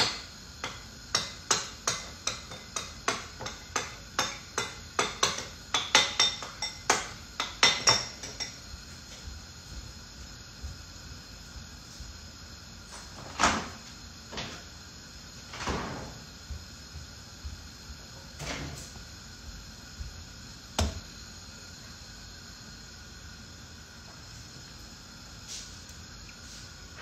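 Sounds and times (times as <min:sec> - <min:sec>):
steady faint hum: 0:00.0 - 0:27.0.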